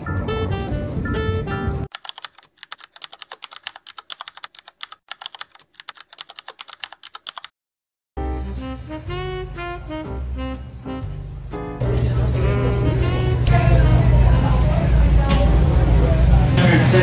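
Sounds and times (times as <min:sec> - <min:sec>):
jazz guitar music: 0:00.0 - 0:01.9, 0:08.2 - 0:15.8
keyboard typing clicks: 0:01.9 - 0:07.5.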